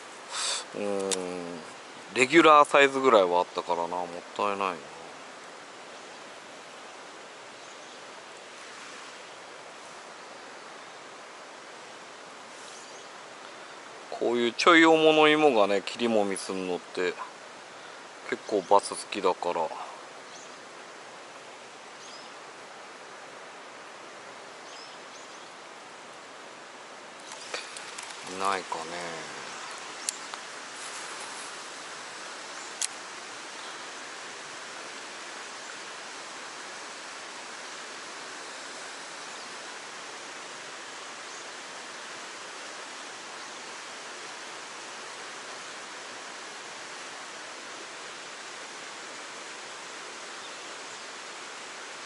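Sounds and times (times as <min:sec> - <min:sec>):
water flowing: 0:00.0 - 0:52.0
faint high bird chirps: 0:12.6 - 0:13.2, 0:22.0 - 0:22.4, 0:24.6 - 0:25.5.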